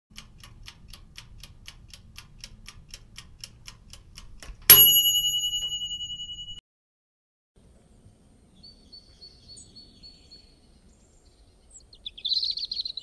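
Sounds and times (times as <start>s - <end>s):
kitchen timer ticking: 0.1s - 6.6s
kitchen timer bell ringing: 4.7s - 6.6s.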